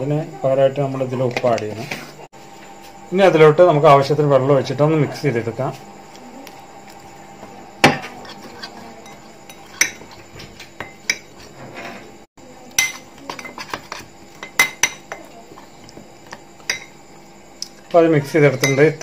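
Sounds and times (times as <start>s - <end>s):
spoon scraping glass bowl: 8.1s - 12.1s, 13.3s - 15.0s.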